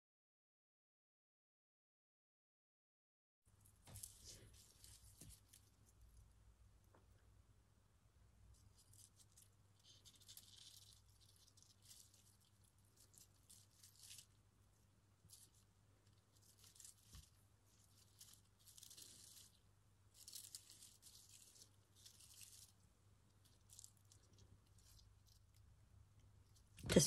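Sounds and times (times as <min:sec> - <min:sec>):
faint low hum: 0:03.5 - 0:27.0
crisp rustling of leaves: 0:03.9 - 0:06.2, 0:08.5 - 0:14.4, 0:15.2 - 0:25.6.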